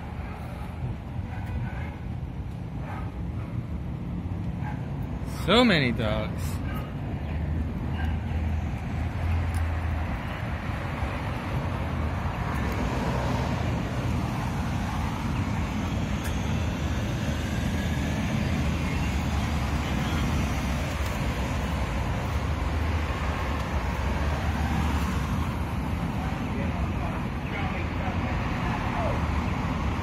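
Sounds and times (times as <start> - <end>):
passing cars rumbling: 0.0 - 30.0.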